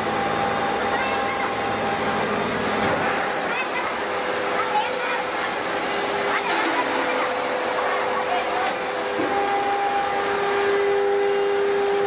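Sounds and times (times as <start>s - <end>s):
forging press machinery running: 0.0s - 12.0s
high machine whine: 0.0s - 12.0s.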